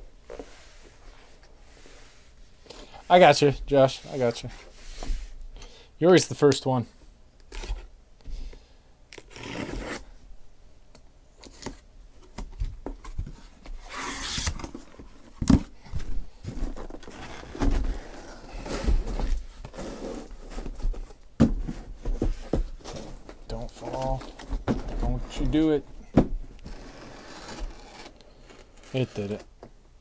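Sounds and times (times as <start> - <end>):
packing tape tearing: 9.1 - 10.0, 26.6 - 29.4
cardboard flaps rustling: 11.5 - 29.4.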